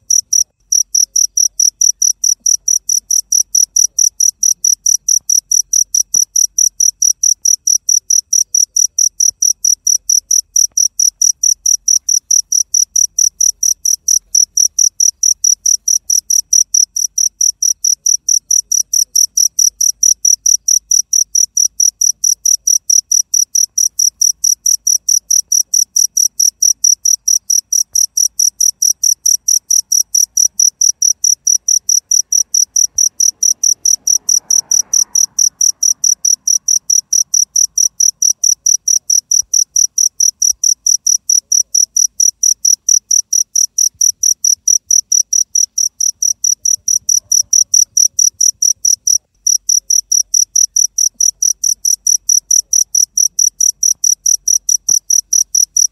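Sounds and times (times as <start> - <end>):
cricket chirping: 0.0 - 55.9.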